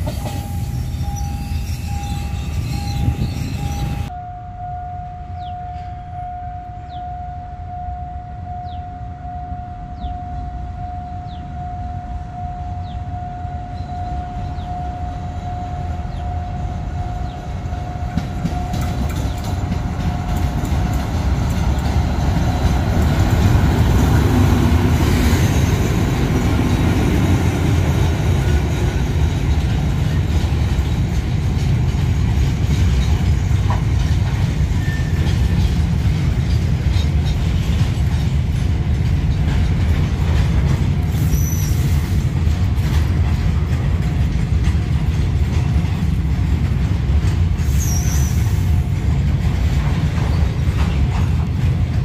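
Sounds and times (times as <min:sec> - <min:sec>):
locomotive engine and wheel rumble: 0:00.0 - 0:04.2, 0:05.1 - 0:52.0
steady high tone: 0:00.0 - 0:21.1
wheels clacking over rail joints: 0:17.5 - 0:52.0.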